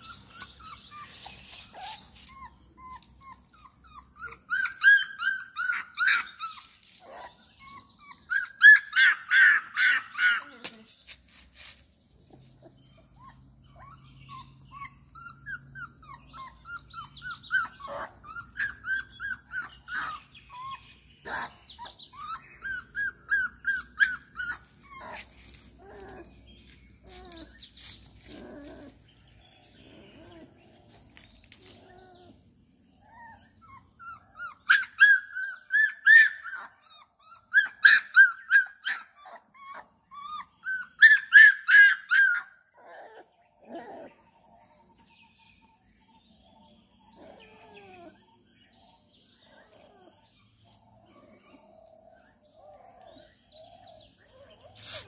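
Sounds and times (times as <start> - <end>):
puppy whimpering and yelping: 0.0 - 10.8, 12.3 - 29.0, 33.0 - 44.2, 47.1 - 48.4, 52.4 - 55.0.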